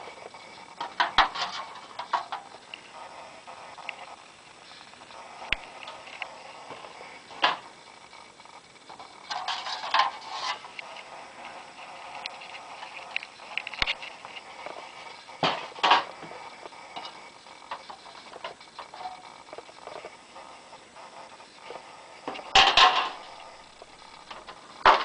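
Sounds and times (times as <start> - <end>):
metal signs clattering and scraping: 0.2 - 2.8, 5.7 - 7.7, 8.9 - 20.1, 21.7 - 25.0.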